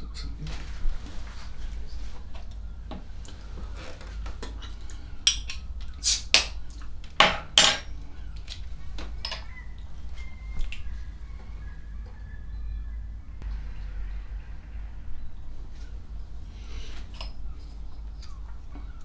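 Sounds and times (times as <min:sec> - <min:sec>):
loud noise bursts: 0:13.4 - 0:16.8.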